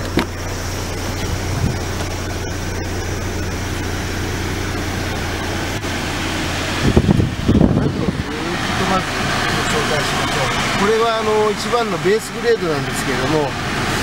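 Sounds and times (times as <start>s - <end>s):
low mechanical hum: 0.0s - 10.9s.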